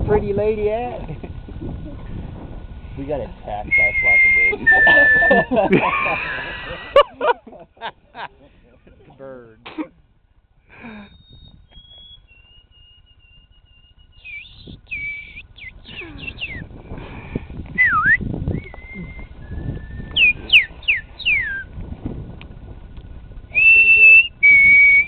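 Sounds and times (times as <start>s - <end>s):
men whistling bird calls: 3.7s - 7.0s, 10.7s - 16.7s, 17.7s - 21.7s, 23.5s - 25.0s.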